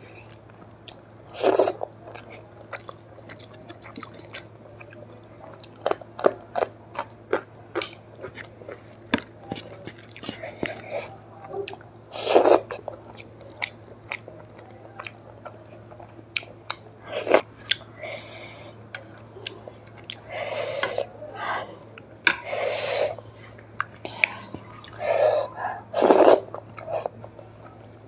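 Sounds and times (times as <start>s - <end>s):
faint steady hum: 0.0s - 28.0s
biting and chewing food: 0.2s - 17.9s.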